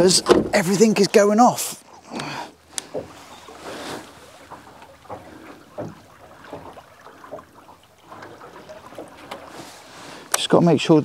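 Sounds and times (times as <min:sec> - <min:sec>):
water lapping against boat hull: 0:00.0 - 0:11.0
wind: 0:00.0 - 0:11.0
light knocks: 0:04.4 - 0:07.5.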